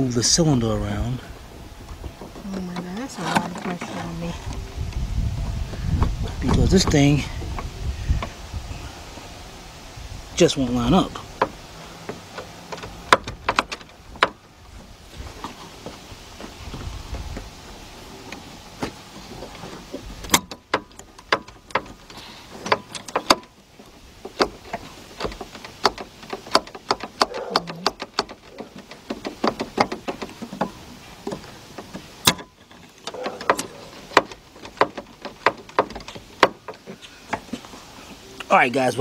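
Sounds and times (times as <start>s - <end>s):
metallic clicks and knocks: 11.0s - 14.5s, 18.3s - 37.6s.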